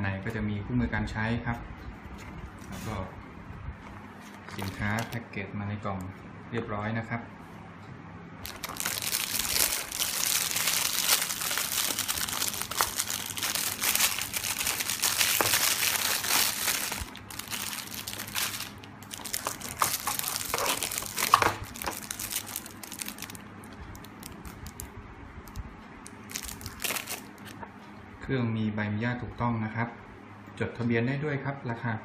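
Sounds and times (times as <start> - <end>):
plastic bag crinkling: 4.5 - 5.2, 8.4 - 24.9, 25.5 - 27.6.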